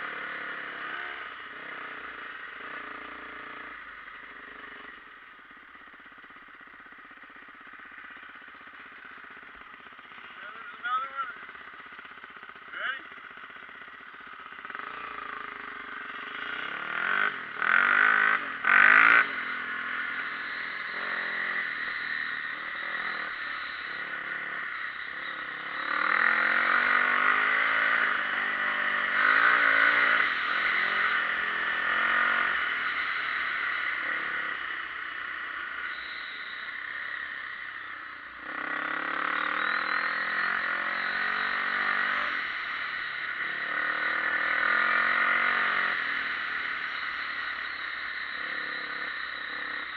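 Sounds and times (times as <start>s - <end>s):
dirt bike engine revving: 0.0s - 49.9s.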